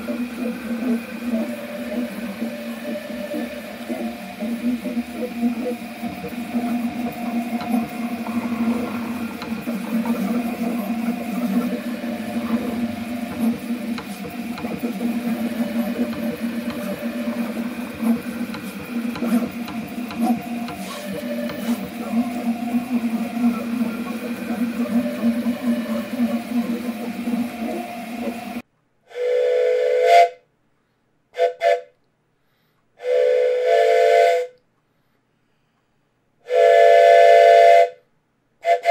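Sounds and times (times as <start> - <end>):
printer motors whirring and clicking: 0.0 - 28.6.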